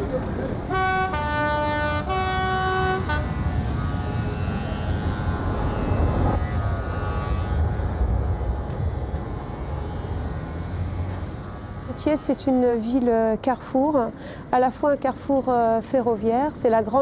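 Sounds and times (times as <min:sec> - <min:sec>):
train horn blasts: 0:00.6 - 0:12.4
low rumble: 0:03.2 - 0:12.9.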